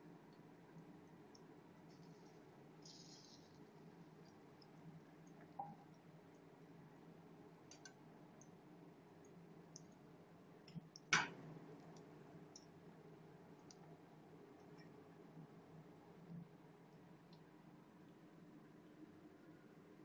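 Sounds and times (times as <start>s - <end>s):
frying in hot oil: 0.0s - 13.9s.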